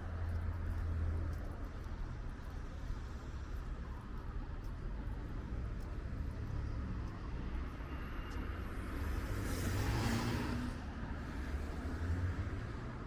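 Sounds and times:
low traffic rumble: 0:00.0 - 0:13.0
car passing by: 0:07.8 - 0:13.0.

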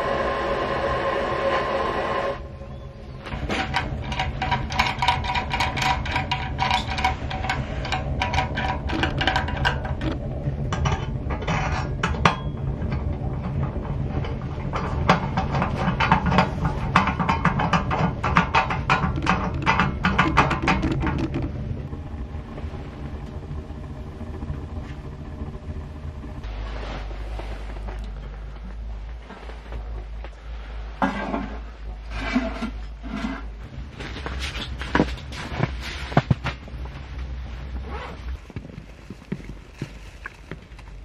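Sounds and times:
stove low rumble: 0:00.0 - 0:41.0.

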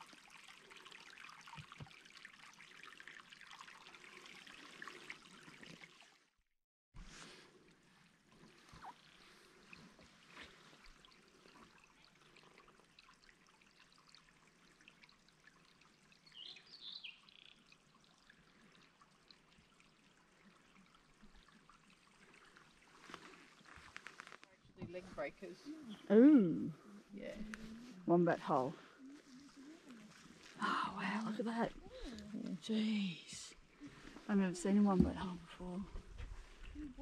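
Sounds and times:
faint water trickle: 0:00.0 - 0:06.4, 0:07.0 - 0:37.0.

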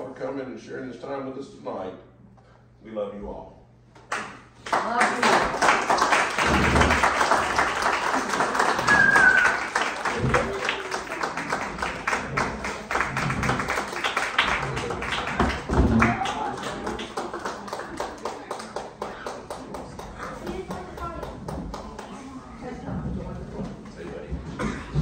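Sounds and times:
audience applauding: 0:04.1 - 0:22.5
short whistle: 0:08.9 - 0:09.6.

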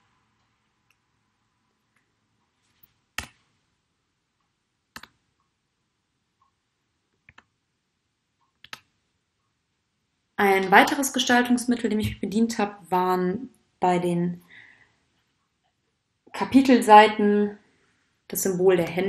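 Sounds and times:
faint computer mouse clicks: 0:08.4 - 0:08.9.

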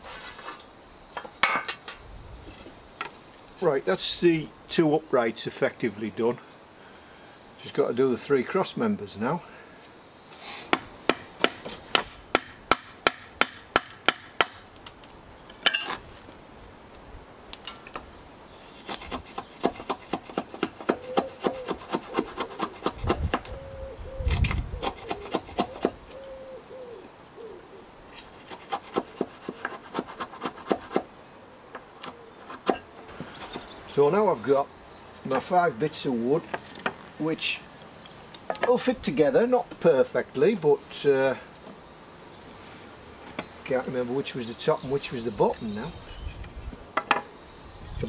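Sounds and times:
hand tool scraping wood: 0:00.0 - 0:00.6, 0:18.6 - 0:23.5, 0:24.4 - 0:26.0, 0:28.2 - 0:31.1, 0:32.4 - 0:33.8.

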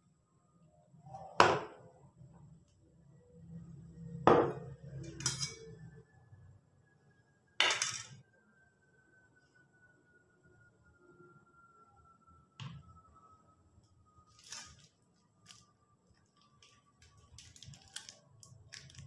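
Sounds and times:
dishware clinking: 0:04.4 - 0:05.7, 0:07.6 - 0:08.2.

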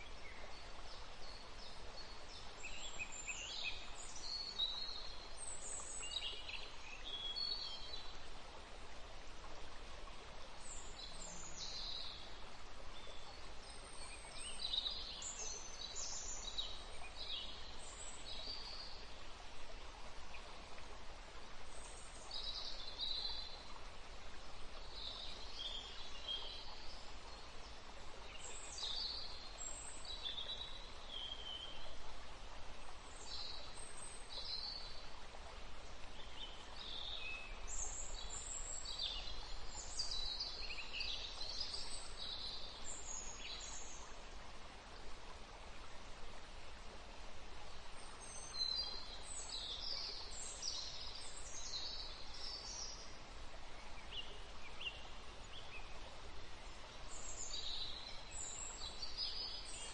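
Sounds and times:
steady background hiss: 0:00.0 - 0:59.9.

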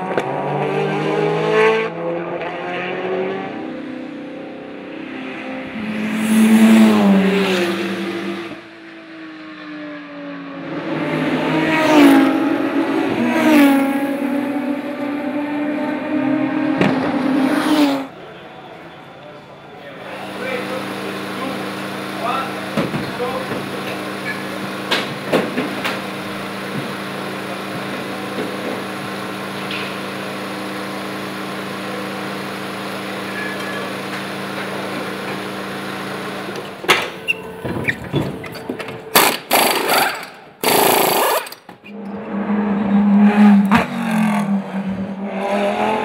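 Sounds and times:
race cars passing at speed: 0:00.0 - 0:46.0.

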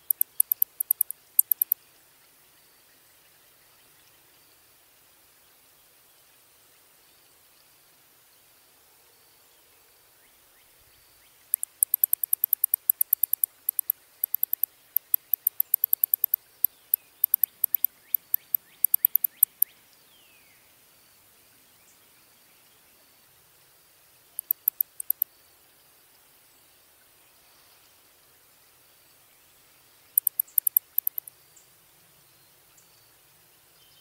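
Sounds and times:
bat clicking chirps: 0:00.0 - 0:01.8, 0:11.5 - 0:16.4, 0:17.2 - 0:19.7, 0:24.4 - 0:25.2, 0:30.2 - 0:31.3.

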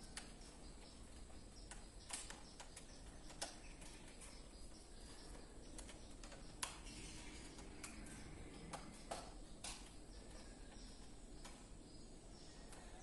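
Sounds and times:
steady low background noise: 0:00.0 - 0:13.0
circuit breakers clicking: 0:05.2 - 0:11.8.

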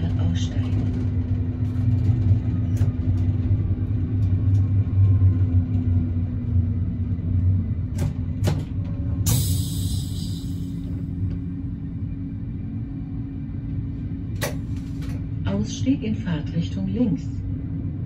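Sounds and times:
railcar engine drone: 0:00.0 - 0:18.0
wheels rumbling on track: 0:00.0 - 0:18.0.

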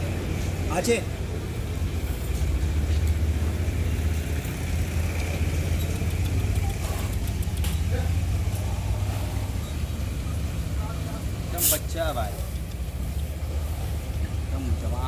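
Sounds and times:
engine idling: 0:00.0 - 0:15.0
faint clicks: 0:05.2 - 0:07.9.

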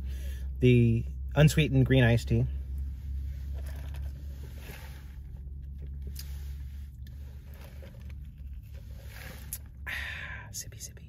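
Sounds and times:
steady low hum: 0:00.0 - 0:11.0
person sipping a drink: 0:02.7 - 0:10.3
small clicks and scrapes: 0:03.5 - 0:09.8.

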